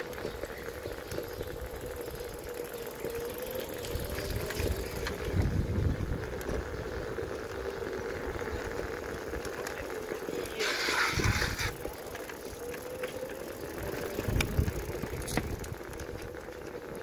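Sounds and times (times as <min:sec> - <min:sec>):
electric scooter motor whine: 0:00.0 - 0:17.0
wind buffeting microphone: 0:03.8 - 0:09.5, 0:10.6 - 0:12.0, 0:13.6 - 0:16.5
tyre rumble: 0:03.8 - 0:17.0.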